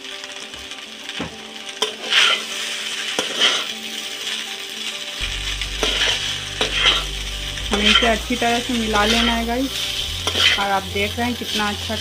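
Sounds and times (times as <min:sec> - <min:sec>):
noodles sizzling in oil: 0:00.0 - 0:12.0
spatula scraping a pan: 0:01.8 - 0:04.4, 0:05.6 - 0:12.0.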